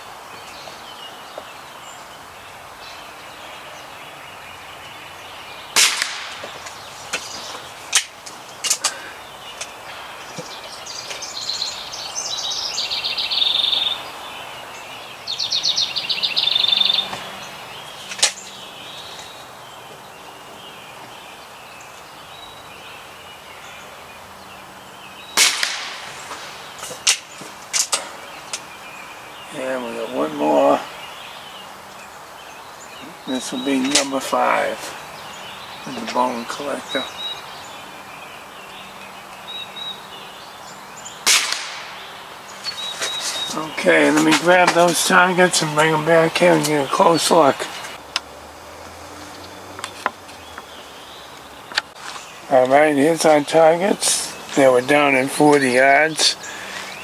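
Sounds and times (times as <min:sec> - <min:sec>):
bird trilling: 0:00.0 - 0:57.0
air rifle shot: 0:05.8 - 0:06.5, 0:25.4 - 0:28.1, 0:41.2 - 0:42.0.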